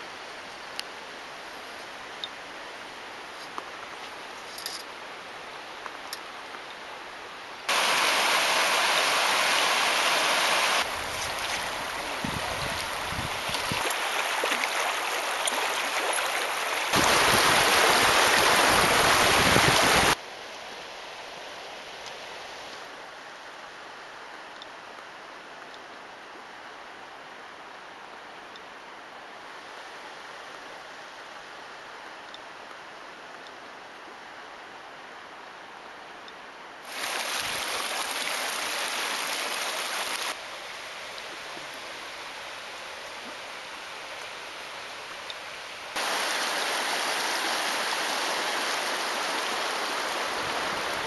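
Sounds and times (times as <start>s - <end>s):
river water gurgling over cobbles: 7.7s - 20.2s, 36.8s - 51.0s.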